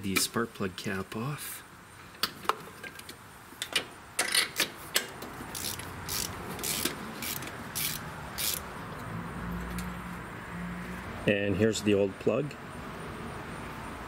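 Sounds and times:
socket ratchet clicking: 0:03.6 - 0:08.7.

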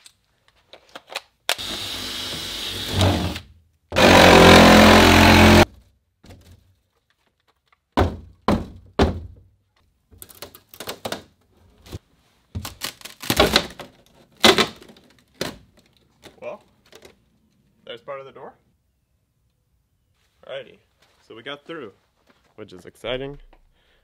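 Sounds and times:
cordless power tool cutting: 0:01.5 - 0:03.4, 0:04.0 - 0:05.6
thuds and cracks of wall: 0:07.9 - 0:09.5.

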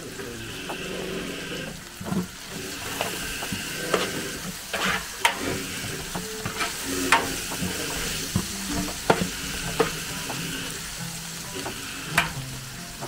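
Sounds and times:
curry sizzling in a pot: 0:00.0 - 0:13.0
utensil scraping and knocking pot: 0:00.0 - 0:13.0.

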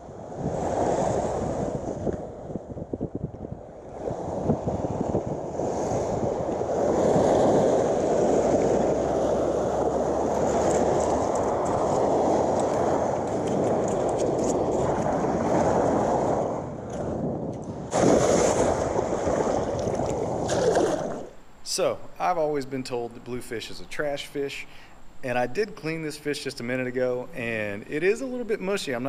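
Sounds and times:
surf washing onto beach: 0:00.0 - 0:21.4
wind buffeting microphone: 0:00.0 - 0:21.4.

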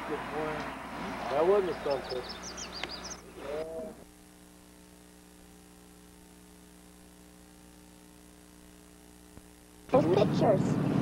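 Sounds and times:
faint mains hum: 0:00.0 - 0:11.0
small click: 0:02.8 - 0:03.0.

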